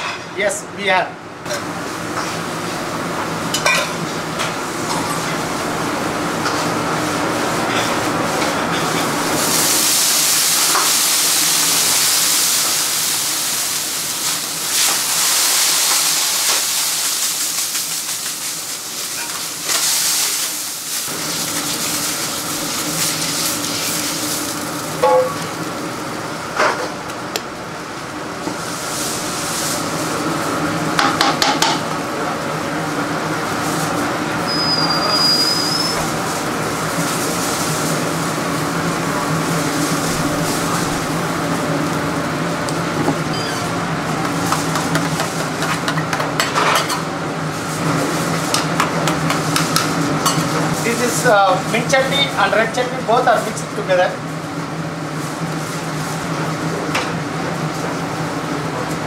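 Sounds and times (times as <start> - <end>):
kitchen hum: 0.0 - 59.0
griddle sizzling and hissing: 1.4 - 59.0.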